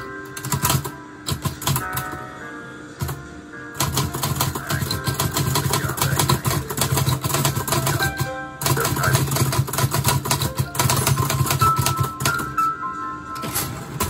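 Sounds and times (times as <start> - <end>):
typewriter key strikes: 0.4 - 2.2, 3.8 - 12.6.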